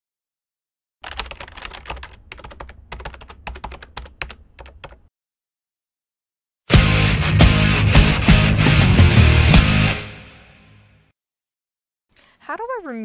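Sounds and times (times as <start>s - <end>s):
keyboard typing clicks: 1.0s - 5.1s
rock music: 6.7s - 11.0s.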